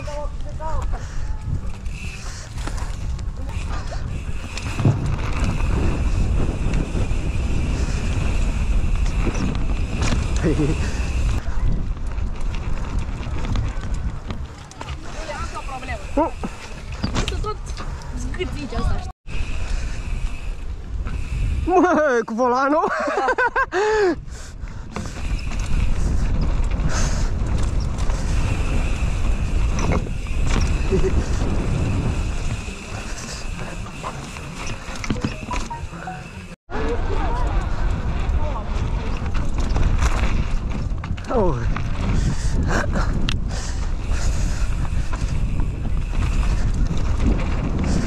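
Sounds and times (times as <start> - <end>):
wind rumbling on microphone: 0.0 - 21.8, 23.3 - 48.0
bike knocks and rattles: 1.6 - 15.0, 16.4 - 18.0, 24.9 - 35.8, 37.2 - 48.0.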